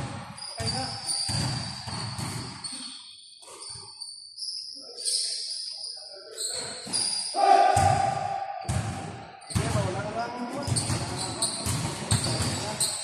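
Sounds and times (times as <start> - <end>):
basketball bouncing: 0.0 - 2.6, 7.8 - 10.0, 10.6 - 12.8
sneakers squeaking on floor: 0.0 - 13.0
voices in a hall: 4.5 - 13.0.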